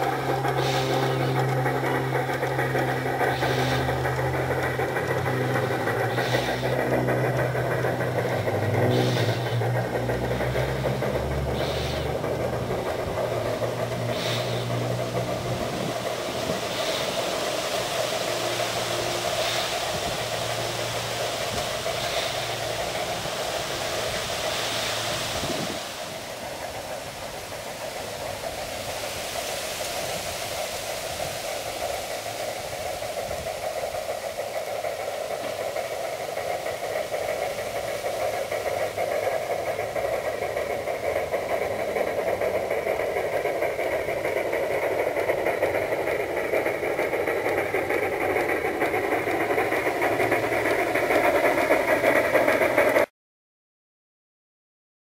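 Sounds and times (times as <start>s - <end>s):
steady mechanical hum: 0.0s - 53.1s
steam engine sound effects: 0.0s - 53.1s.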